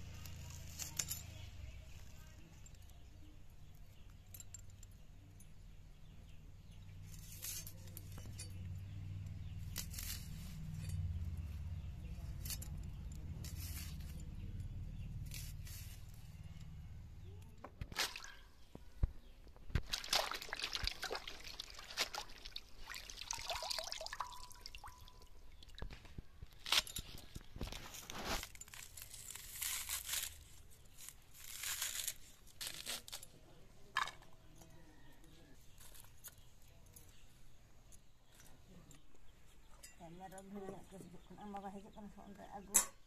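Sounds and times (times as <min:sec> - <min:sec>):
onion skins crackling: 0:09.2 - 0:16.8, 0:17.4 - 0:19.0, 0:19.6 - 0:33.5
water splashing and dripping: 0:19.8 - 0:25.9.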